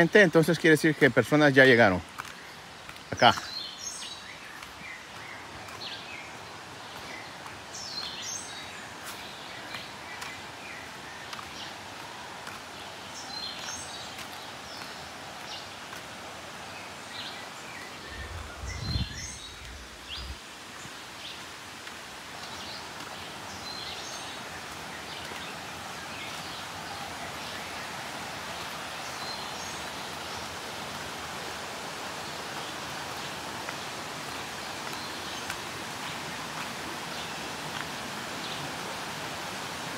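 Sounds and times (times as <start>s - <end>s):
steady forest hiss: 0.0s - 39.9s
low rumble on microphone: 18.2s - 20.4s.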